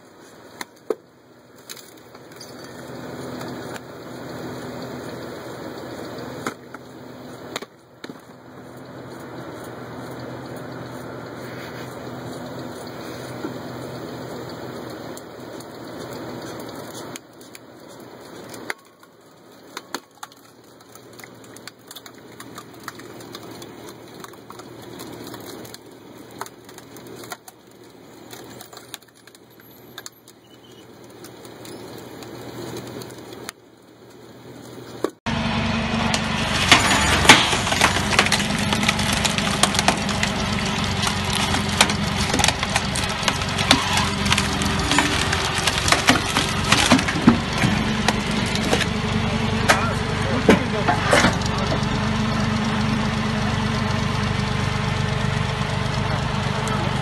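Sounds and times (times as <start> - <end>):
log splitter grinding: 0.0 - 33.6, 35.3 - 57.0
wood cracking and snapping: 0.5 - 3.9, 14.7 - 34.2, 36.0 - 52.9.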